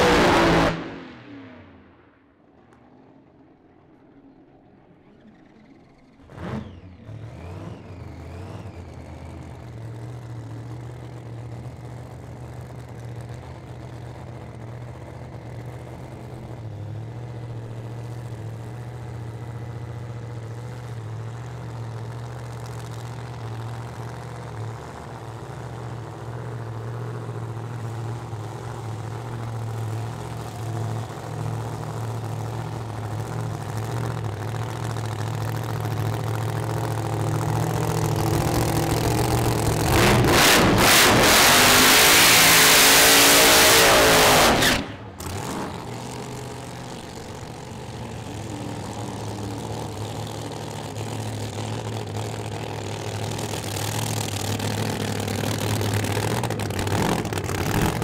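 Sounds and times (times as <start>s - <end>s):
car engine idling with lope: 1.6s - 58.0s.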